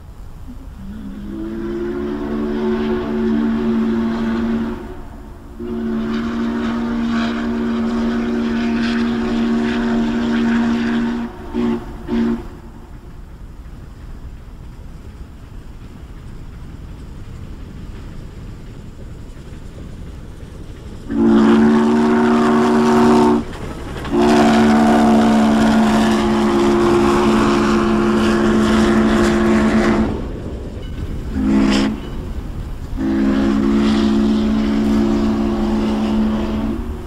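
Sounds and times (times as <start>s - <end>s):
steam hiss: 0.0s - 37.0s
steam whistle chord: 0.8s - 12.9s, 21.1s - 23.4s, 24.1s - 30.3s, 31.4s - 32.2s, 33.0s - 37.0s.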